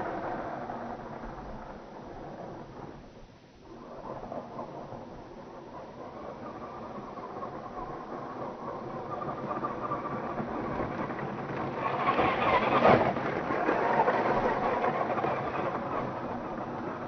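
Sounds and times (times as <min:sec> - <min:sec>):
toy truck motor whining: 0:06.2 - 0:17.0.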